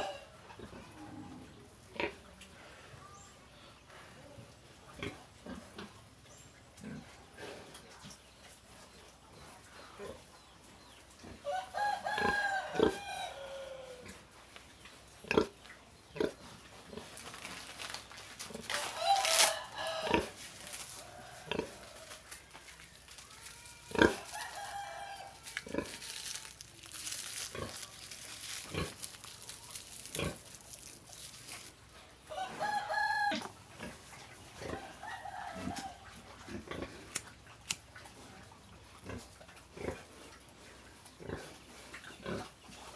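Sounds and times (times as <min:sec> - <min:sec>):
rooster crowing: 0:00.0 - 0:00.3, 0:11.5 - 0:14.1, 0:18.7 - 0:22.4, 0:23.9 - 0:26.5, 0:32.3 - 0:33.6, 0:34.6 - 0:36.1.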